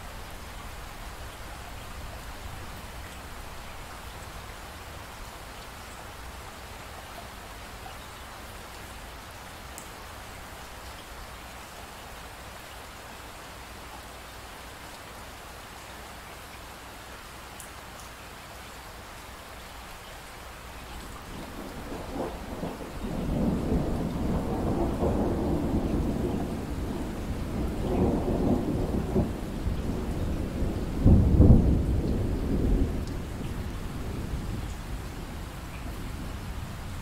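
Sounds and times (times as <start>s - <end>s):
rain hiss: 0.0s - 37.0s
thunder rumbling: 21.2s - 37.0s.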